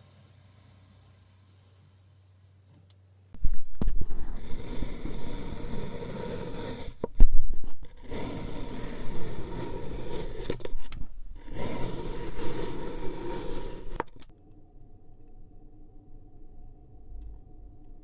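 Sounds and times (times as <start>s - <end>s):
faint hum: 0.0s - 18.0s
knife scraping through sand: 4.1s - 7.1s, 7.7s - 14.2s.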